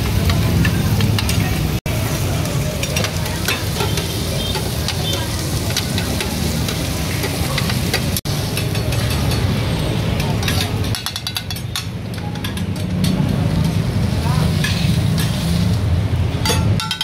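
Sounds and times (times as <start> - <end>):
meat sizzling on hot plate: 1.6 - 9.6.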